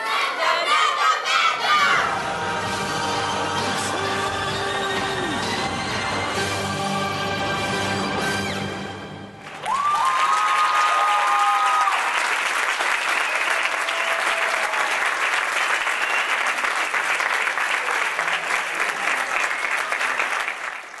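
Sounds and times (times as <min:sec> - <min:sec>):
audience applauding: 0:09.4 - 0:21.0
people cheering: 0:09.4 - 0:21.0.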